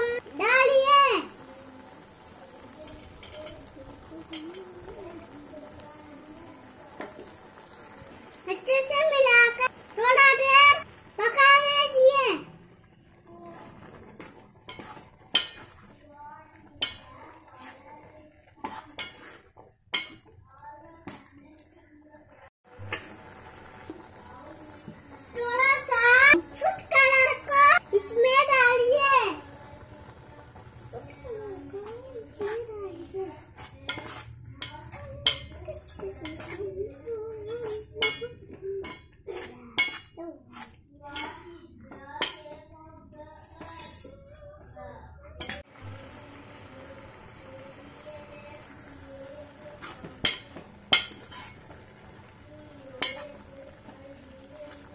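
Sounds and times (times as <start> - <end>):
spoon clinking against metal pot: 2.9 - 3.7, 4.3 - 4.7, 14.7 - 15.8, 18.6 - 20.3, 33.9 - 36.6, 37.4 - 39.2, 39.8 - 40.2, 41.1 - 41.4, 42.2 - 42.6, 45.4 - 45.6, 50.2 - 51.7, 53.0 - 53.4
spoon scraping pot: 13.4 - 16.0, 16.6 - 20.3, 31.7 - 41.4, 49.5 - 52.4.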